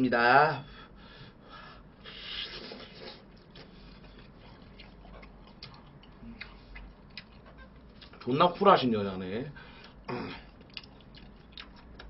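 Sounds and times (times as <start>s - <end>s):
chewing food: 2.3s - 8.3s, 9.8s - 12.0s.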